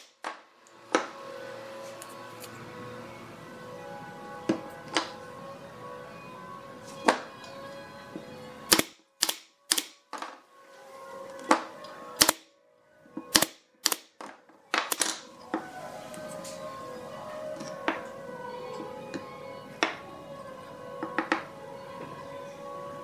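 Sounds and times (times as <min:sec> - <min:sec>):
background music: 0:00.0 - 0:23.0
nail gun firing: 0:08.7 - 0:10.0, 0:11.5 - 0:12.5, 0:13.3 - 0:15.2.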